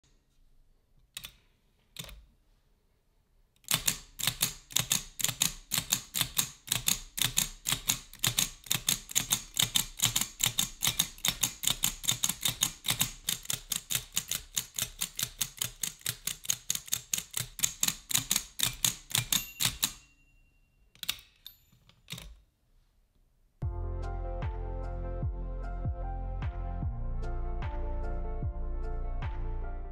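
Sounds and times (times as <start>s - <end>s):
typewriter carriage clicks: 3.6s - 20.1s
typewriter key clicks: 3.6s - 20.1s, 21.0s - 22.4s
typewriter bell ringing: 18.6s - 21.9s.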